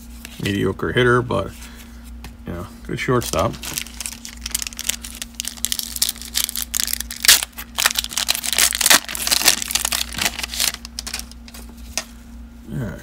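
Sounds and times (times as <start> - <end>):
foil wrapper tearing and crinkling: 3.2 - 11.6.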